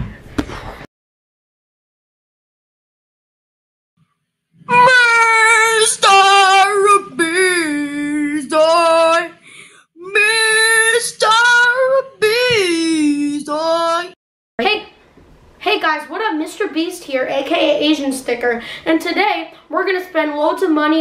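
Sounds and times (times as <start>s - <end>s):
high young voice singing: 4.6s - 9.4s, 10.0s - 14.2s.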